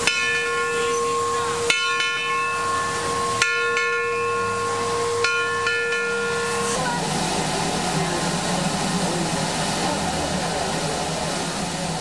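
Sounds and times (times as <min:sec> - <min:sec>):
sharp bell-like strike: 0:00.0 - 0:06.9
steam locomotive whistle chord: 0:00.0 - 0:07.0
steady steam hiss: 0:00.0 - 0:12.0.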